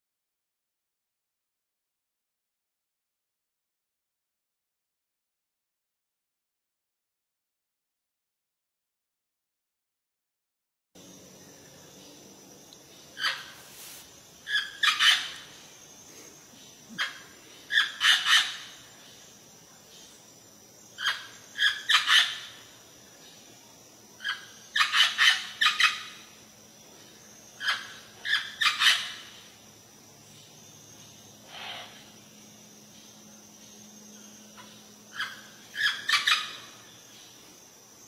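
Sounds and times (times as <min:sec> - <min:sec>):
parrot squawking: 0:14.5 - 0:15.4.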